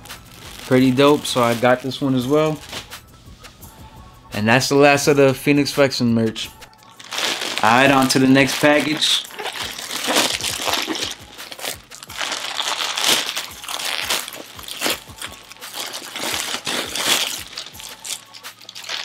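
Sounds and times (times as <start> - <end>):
plastic mailer bag crinkling: 0.3 - 2.8, 6.9 - 19.0.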